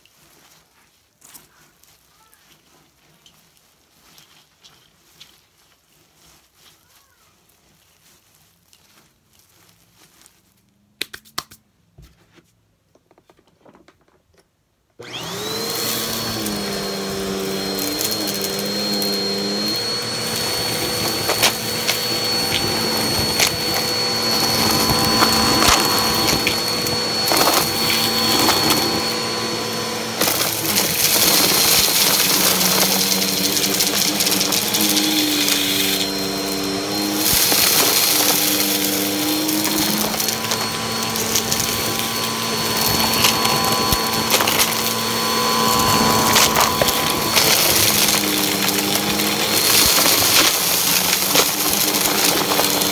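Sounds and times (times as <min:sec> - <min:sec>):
hands rustling in debris: 0:00.0 - 0:11.0, 0:15.0 - 0:52.9
upright vacuum cleaner whine: 0:15.0 - 0:52.9.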